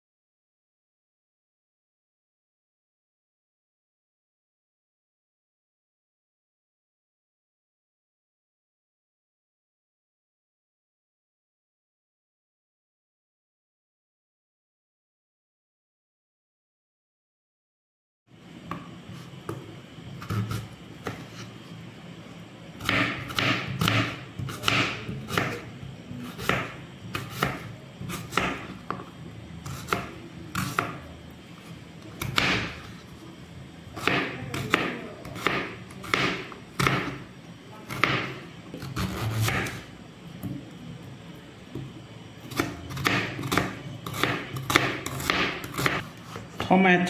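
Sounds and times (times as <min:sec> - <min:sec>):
knife chopping on wooden board: 0:20.2 - 0:21.4, 0:22.8 - 0:25.6, 0:26.2 - 0:29.0, 0:29.6 - 0:31.0, 0:32.2 - 0:33.0, 0:34.0 - 0:37.2, 0:37.9 - 0:39.8, 0:42.5 - 0:46.6.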